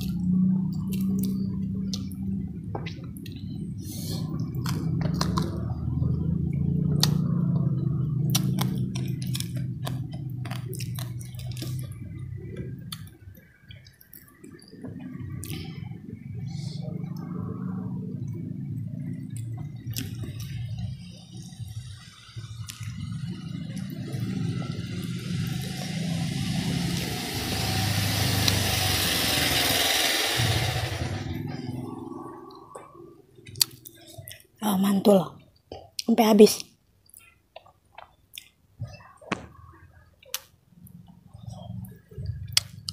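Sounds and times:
vehicle engine passing by: 0:03.3 - 0:12.9, 0:15.0 - 0:33.9
chewing with lip smacks: 0:06.8 - 0:15.7.

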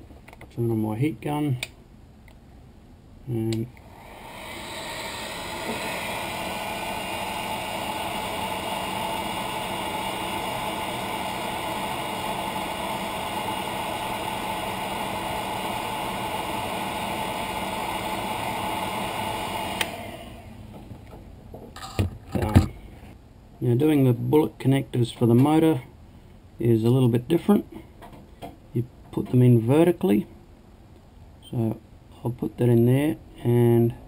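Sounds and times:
hot air gun blowing: 0:03.8 - 0:20.5.

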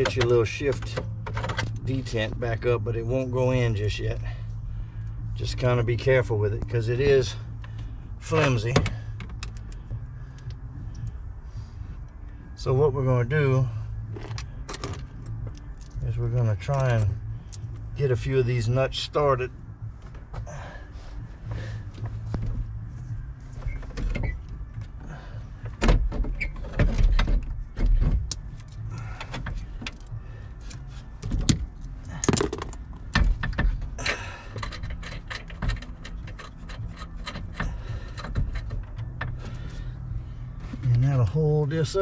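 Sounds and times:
metal clicking and rattling: 0:31.2 - 0:39.6.

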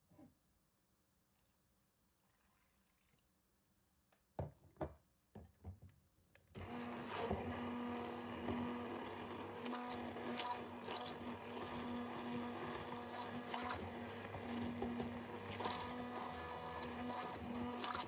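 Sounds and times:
stick blender running: 0:06.6 - 0:18.0.

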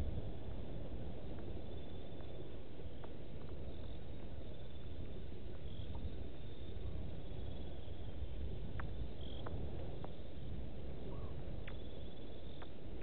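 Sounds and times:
steady low rumbling: 0:00.0 - 0:06.1
insects trilling: 0:00.2 - 0:13.0.

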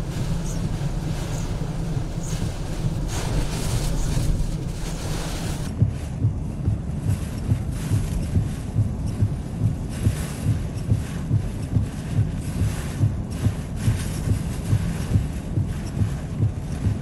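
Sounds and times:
driving rain: 0:00.0 - 0:10.3
gusting wind: 0:00.0 - 0:17.0.

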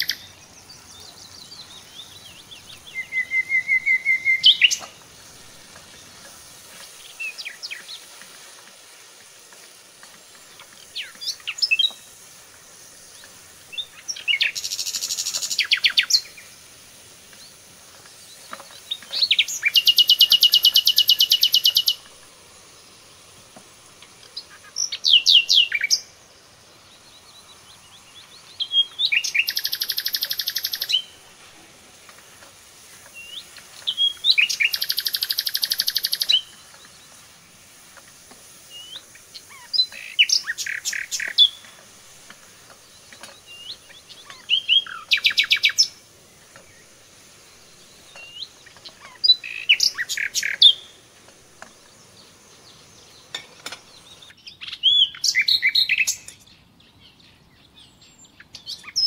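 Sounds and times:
songbird singing trills: 0:00.0 - 0:59.0.

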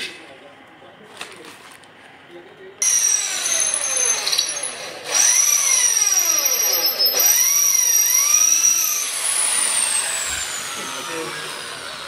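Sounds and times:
electric drill whining: 0:02.8 - 0:12.0.

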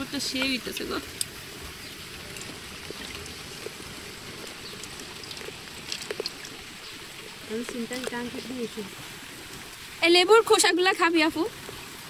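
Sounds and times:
juice trickling into a jug: 0:00.0 - 0:12.0
small drips: 0:00.0 - 0:12.0
steady rain: 0:00.0 - 0:12.0.

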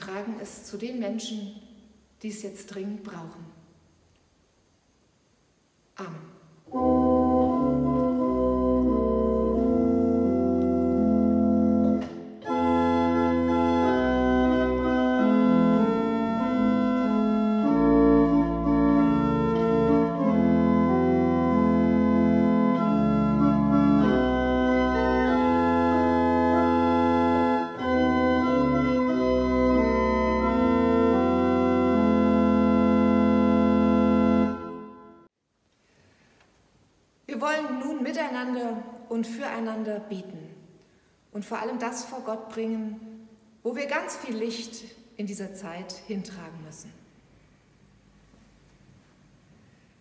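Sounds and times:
church organ chords: 0:06.7 - 0:35.4.

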